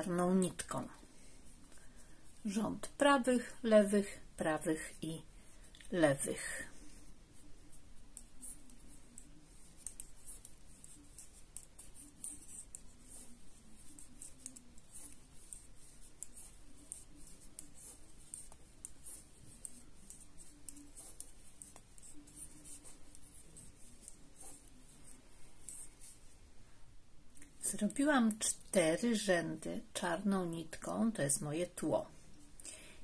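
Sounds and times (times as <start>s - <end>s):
knitting needles clicking: 8.1s - 24.6s.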